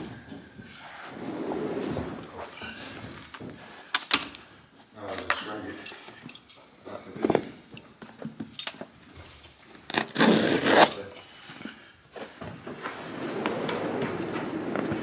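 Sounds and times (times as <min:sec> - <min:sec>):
carpet rustling scrape: 0:00.8 - 0:02.5, 0:12.8 - 0:15.0
light clicks and clinks: 0:05.3 - 0:06.7, 0:07.7 - 0:09.4.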